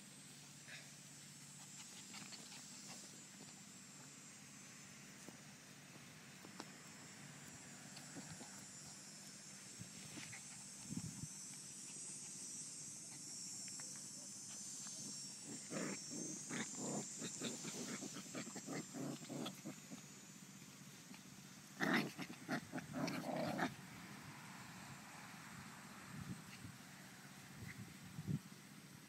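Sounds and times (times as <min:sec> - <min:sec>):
puppies growling: 0:15.4 - 0:20.2, 0:21.0 - 0:23.8.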